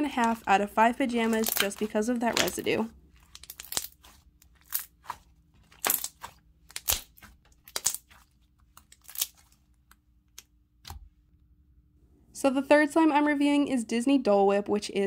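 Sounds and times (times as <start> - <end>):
sticky pops and crackles: 1.2 - 9.5.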